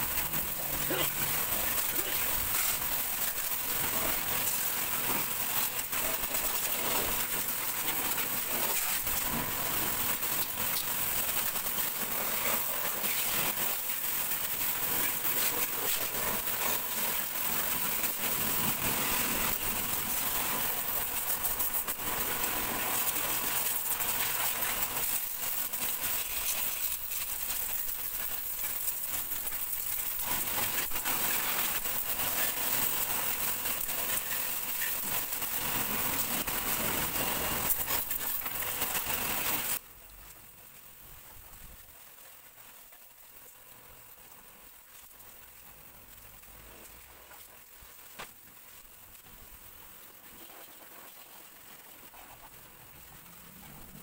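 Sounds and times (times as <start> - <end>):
pressure washer water jet hissing: 0.0 - 39.8.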